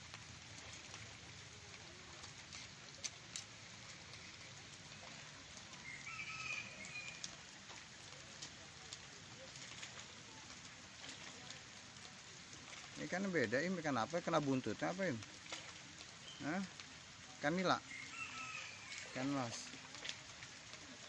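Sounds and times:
light rain on a pond: 0.0 - 21.0
bird call: 17.9 - 19.2.

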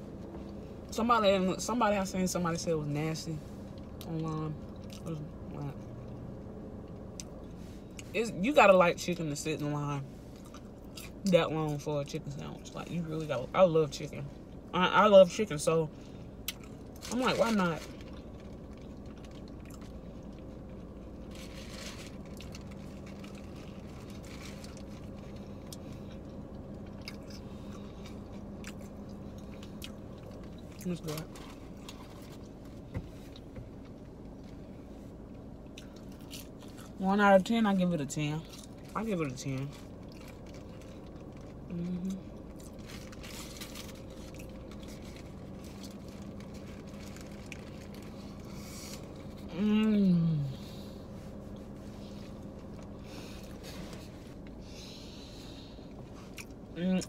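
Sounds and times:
steady low hum: 0.0 - 57.0
person chewing crispy food: 10.3 - 11.3, 16.4 - 32.7, 35.6 - 37.0, 39.6 - 49.5, 55.9 - 56.7.

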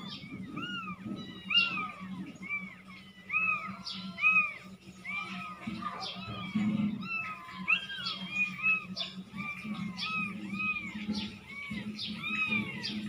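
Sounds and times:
kittens mewing: 0.0 - 13.0.

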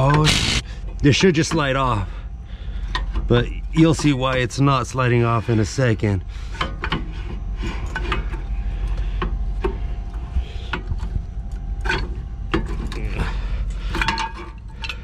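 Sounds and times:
metal grinding scrape: 6.3 - 8.8
metal brake parts clunking: 11.8 - 15.0.

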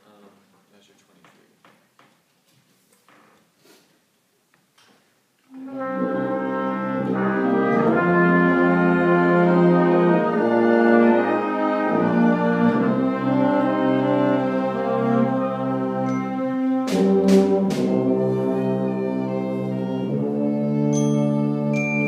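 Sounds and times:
small ensemble playing chords: 5.5 - 22.0.

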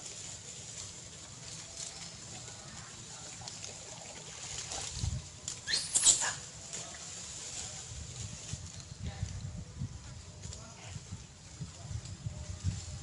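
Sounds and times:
monkey high-pitched squeal: 5.6 - 6.5.

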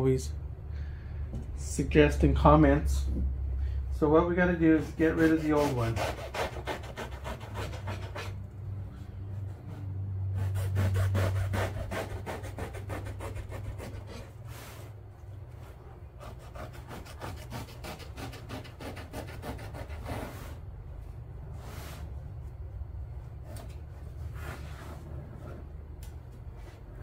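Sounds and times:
low steady hum: 0.0 - 27.0
hacksaw sawing through foam: 4.8 - 8.4, 10.3 - 14.4, 16.2 - 20.6.

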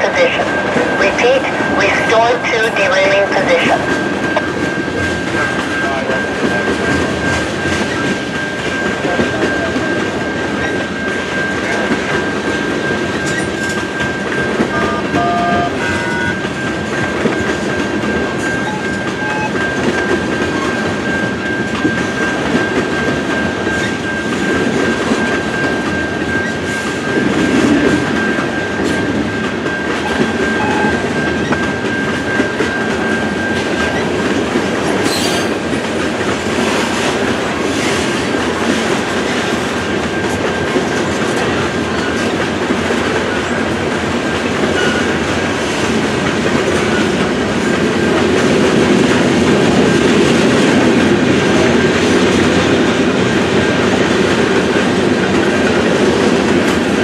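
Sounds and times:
train wheels clacking on rails: 0.0 - 57.0
electronic crossing bell ringing: 13.8 - 33.9.

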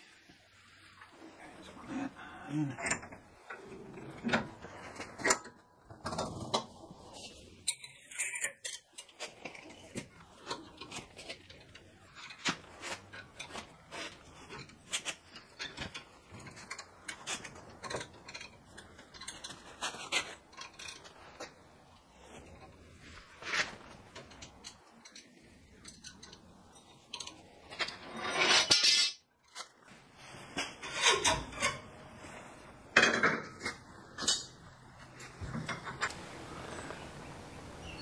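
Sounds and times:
metal clinks and scrapes: 7.2 - 21.7.

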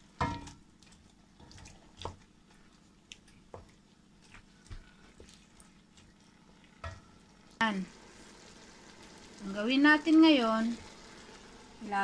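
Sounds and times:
wet squishing of stirred food: 0.2 - 7.6.

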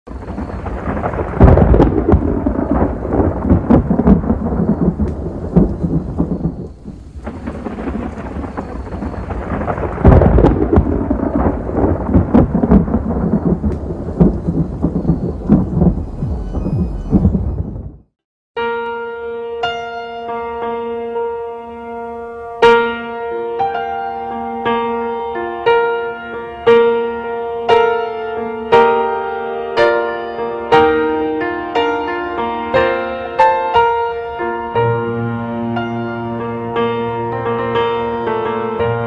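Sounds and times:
rumbling thunder with crackling: 0.1 - 18.2.

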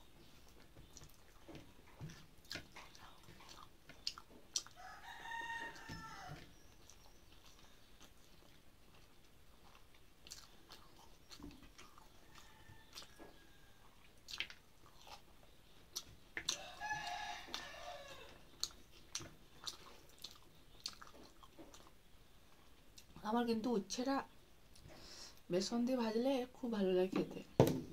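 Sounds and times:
person chewing with crunches: 0.0 - 23.2
rooster crowing: 4.8 - 6.5, 12.2 - 14.0, 16.5 - 18.4.

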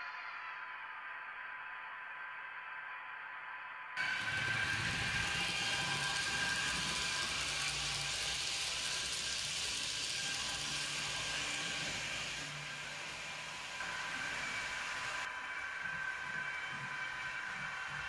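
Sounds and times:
model train motors whirring: 4.0 - 18.0.

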